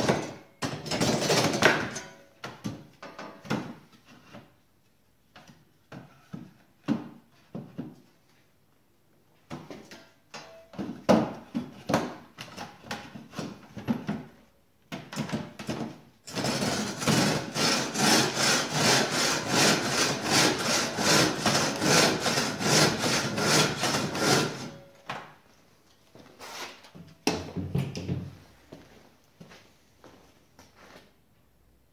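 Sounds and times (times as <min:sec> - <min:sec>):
handsaw cutting timber: 0:16.3 - 0:24.8.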